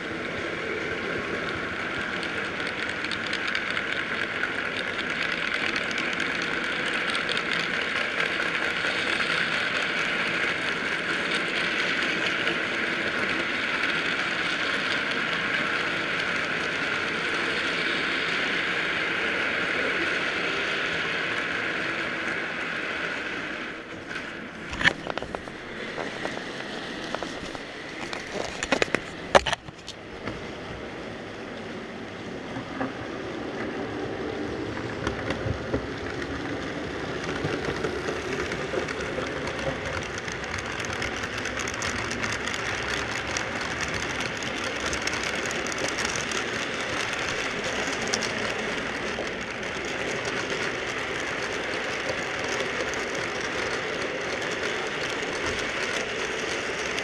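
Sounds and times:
locomotive running noise: 0.0 - 57.0
model train wheels clicking on track: 0.0 - 57.0
sharp clicks and knocks: 24.6 - 30.4.

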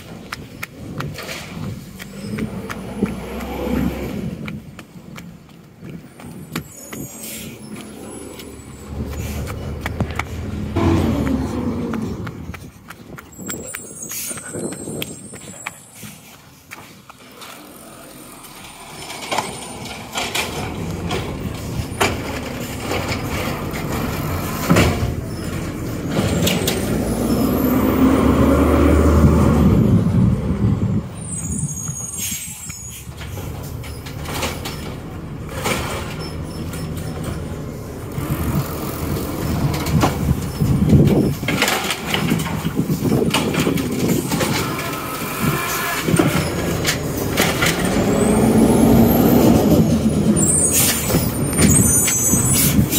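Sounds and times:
garbage truck engine running: 17.4 - 31.1, 33.1 - 52.9.

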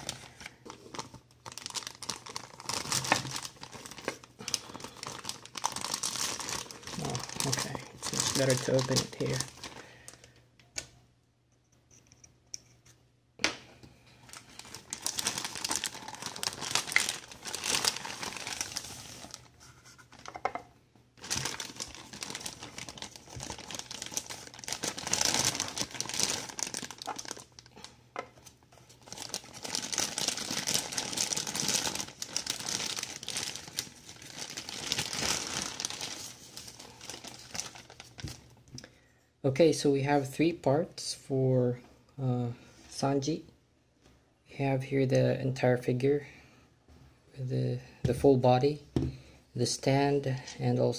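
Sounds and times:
plastic bag crinkling: 0.0 - 10.3, 14.2 - 20.6, 21.2 - 38.5.

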